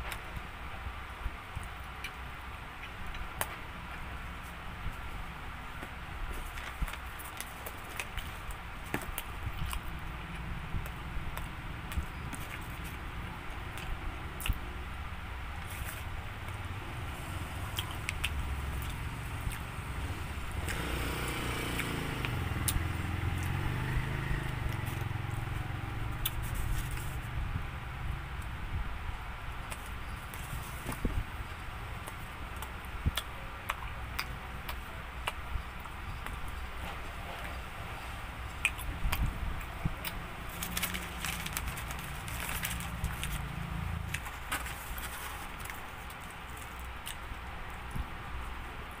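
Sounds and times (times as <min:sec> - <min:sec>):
motor vehicle rumble: 0:00.0 - 0:49.0
plastic sachet crinkling: 0:40.5 - 0:43.5, 0:44.1 - 0:46.9.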